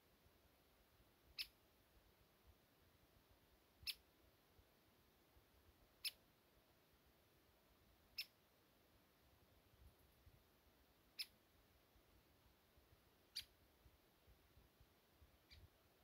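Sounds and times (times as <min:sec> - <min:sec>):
small bird chirping: 0:01.3 - 0:01.6, 0:03.8 - 0:04.1, 0:05.9 - 0:06.2, 0:08.1 - 0:08.4, 0:11.1 - 0:11.4, 0:13.2 - 0:13.6, 0:15.2 - 0:16.0.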